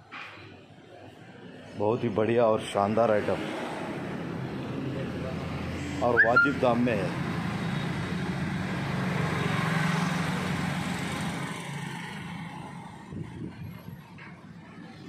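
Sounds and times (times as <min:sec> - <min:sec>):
vehicle engine passing: 0:03.3 - 0:12.5.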